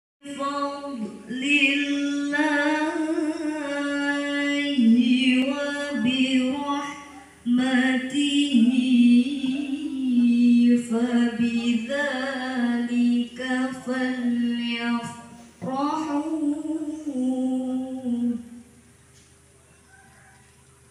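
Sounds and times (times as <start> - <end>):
person reciting melodiously: 0.2 - 18.7.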